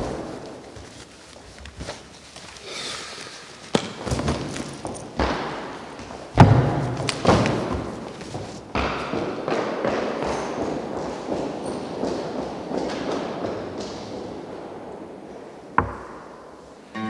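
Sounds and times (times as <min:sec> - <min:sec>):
cloth rustling: 0:00.0 - 0:05.2
footsteps and thuds on wooden floor: 0:03.7 - 0:14.2.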